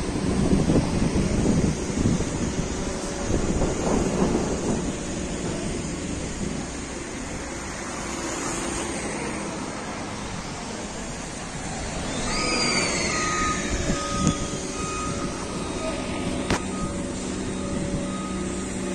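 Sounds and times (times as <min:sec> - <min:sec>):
cars passing: 0:00.0 - 0:18.9
falling whine: 0:00.0 - 0:18.9
reversing alarm beeping: 0:12.0 - 0:18.9.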